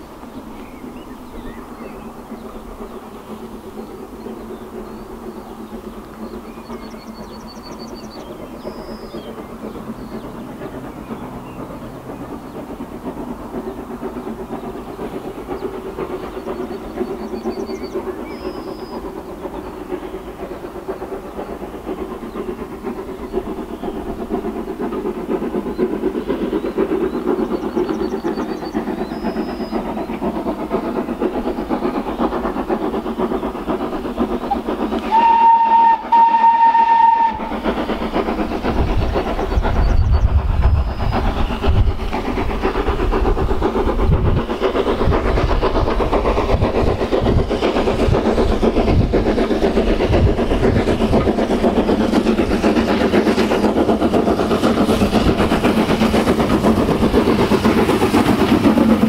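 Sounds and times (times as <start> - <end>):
steam locomotive exhaust: 0.0 - 59.0
small bird singing: 0.2 - 12.9, 14.5 - 24.3, 25.5 - 34.8.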